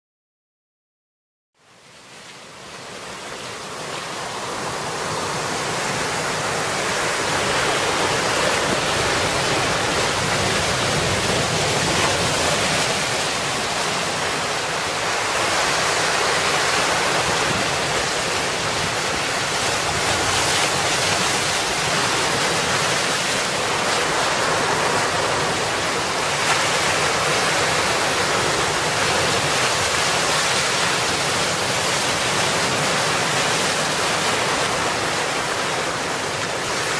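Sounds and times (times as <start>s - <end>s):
wind: 1.6s - 36.9s
surf breaking over rocks: 2.9s - 36.9s.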